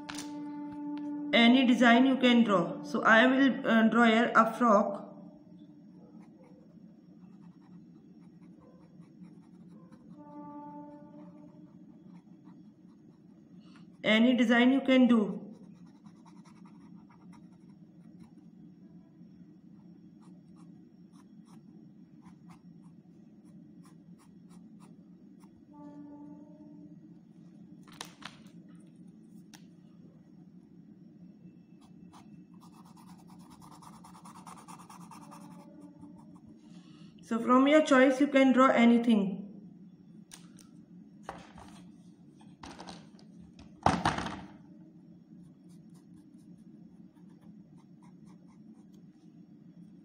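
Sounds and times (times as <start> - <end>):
steady tone: 0.0 - 4.4
steady low hum: 0.0 - 50.0
pen scratching on wooden stick: 7.2 - 10.4.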